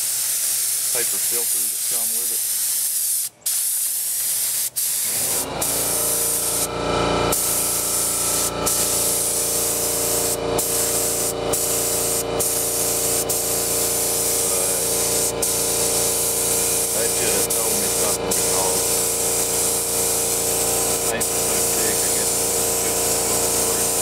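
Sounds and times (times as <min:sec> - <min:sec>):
paint spray gun hissing: 0:00.0 - 0:24.0
steady hum: 0:05.1 - 0:24.0.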